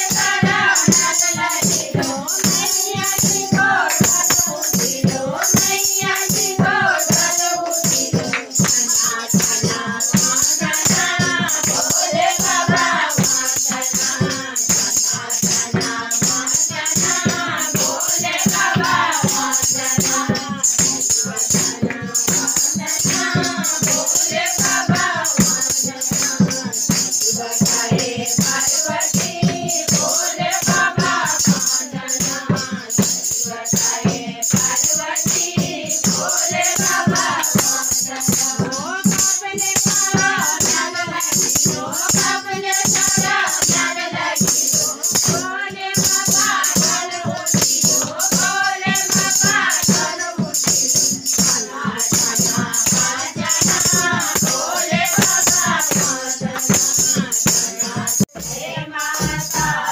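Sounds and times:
shaken jingle rattle: 0.0s - 59.9s
tambourine: 0.0s - 59.9s
women singing devotional song: 0.0s - 59.9s
hand clapping: 1.8s - 12.0s, 51.4s - 57.8s.

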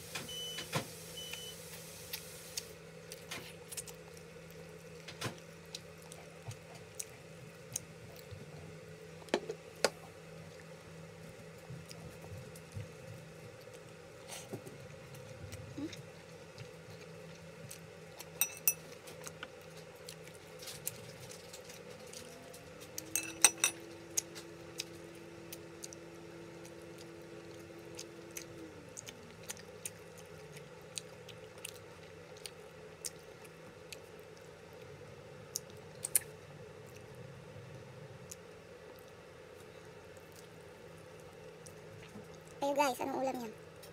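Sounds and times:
low whirring tone: 0.0s - 42.6s
steady low hum: 0.0s - 43.9s
person chewing: 2.1s - 8.8s, 10.4s - 23.2s, 24.1s - 34.9s, 35.5s - 37.2s, 38.2s - 42.6s
fingers clinking on plate and bowl: 18.4s - 18.9s, 23.1s - 23.8s.

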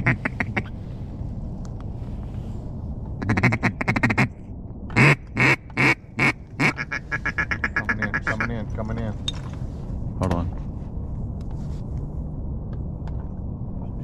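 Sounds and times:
duck call quacks: 5.0s - 8.5s.

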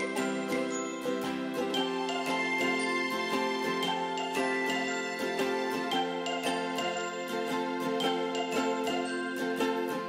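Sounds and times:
bright chiming notes: 0.0s - 10.0s
light instrumental music: 0.0s - 10.0s.

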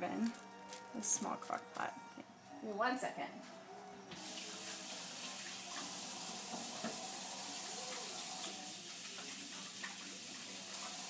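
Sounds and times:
tap running water into sink: 4.1s - 11.0s.

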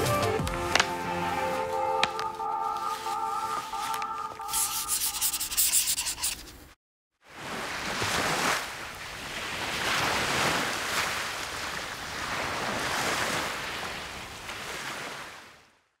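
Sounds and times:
small waves on sandy beach: 7.2s - 15.8s.

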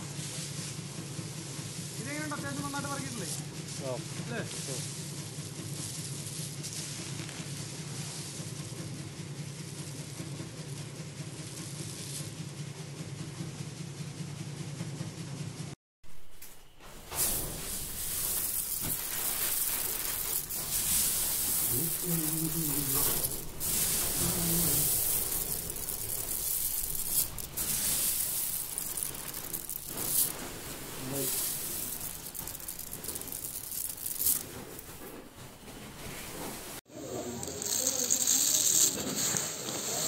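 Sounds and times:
plastic sack crinkling: 16.2s - 40.0s
dry seed pods rustling: 16.3s - 36.1s, 37.0s - 40.0s.

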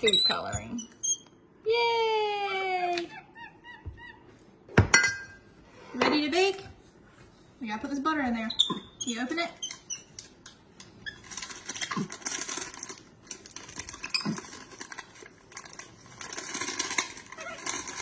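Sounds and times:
paper wrapper crinkling: 11.1s - 18.0s.

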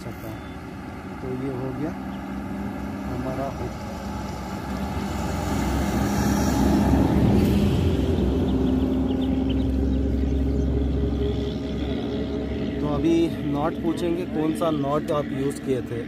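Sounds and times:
low engine rumble: 0.0s - 16.0s.

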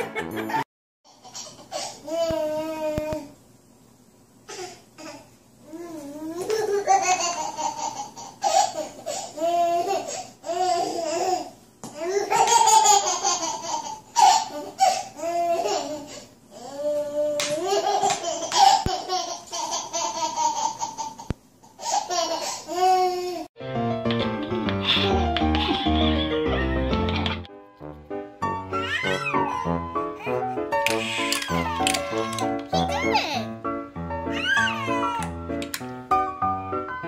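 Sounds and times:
baby laughing and squealing: 28.7s - 33.5s, 34.3s - 35.3s.

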